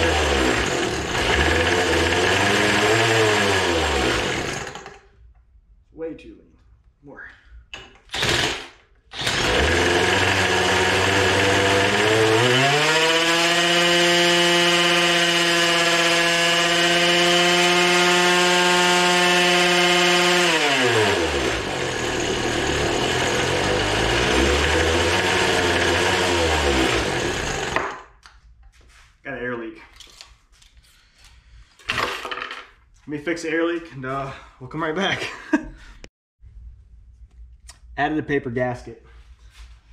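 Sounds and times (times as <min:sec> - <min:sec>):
leaf blower engine revving: 0:00.0 - 0:04.9, 0:08.1 - 0:27.8.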